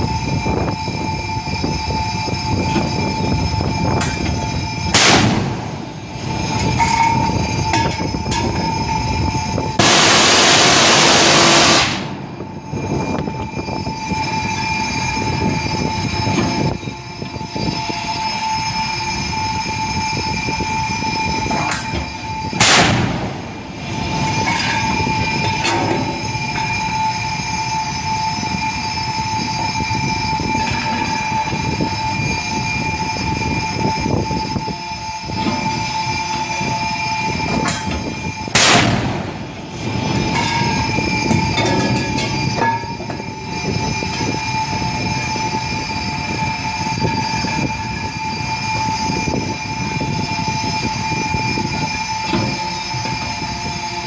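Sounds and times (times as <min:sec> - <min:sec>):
ship machinery drone: 0:00.0 - 0:54.0
loud rushing noise: 0:03.0 - 0:16.8, 0:20.2 - 0:29.3, 0:35.4 - 0:50.7
naval gun firing: 0:22.6 - 0:23.2, 0:38.6 - 0:39.1.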